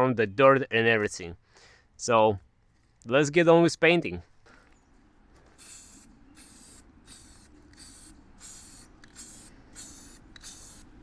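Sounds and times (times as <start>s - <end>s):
spray paint can hissing: 5.6s - 11.0s.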